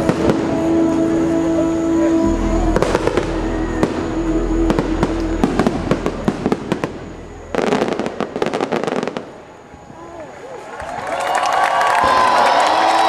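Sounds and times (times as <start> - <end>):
music held chord: 0.0 - 9.6
low rumble: 0.0 - 9.8
crackling bangs: 0.0 - 10.0
fireworks bangs: 0.0 - 10.4.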